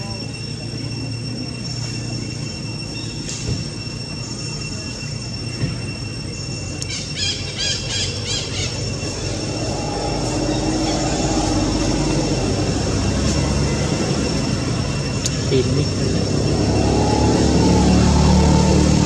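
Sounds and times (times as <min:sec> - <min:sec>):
high-pitched whine: 0:00.0 - 0:19.0
low engine drone: 0:00.0 - 0:19.0
chirping calls: 0:06.5 - 0:18.7.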